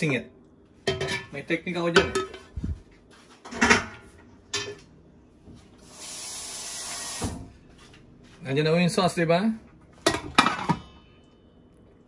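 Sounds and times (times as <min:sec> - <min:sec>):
cookware knocking and scraping: 0:00.8 - 0:01.3, 0:01.9 - 0:02.6, 0:03.4 - 0:04.8, 0:10.0 - 0:11.0.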